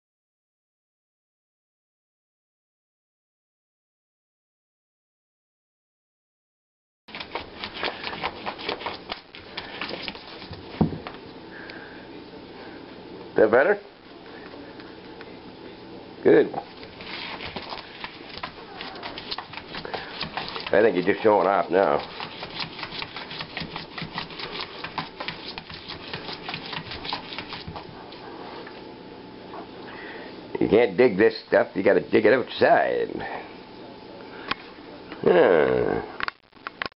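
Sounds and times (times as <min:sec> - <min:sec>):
puppy claws clicking on tile: 0:07.1 - 0:10.4, 0:17.3 - 0:27.9
thump: 0:10.8 - 0:11.1.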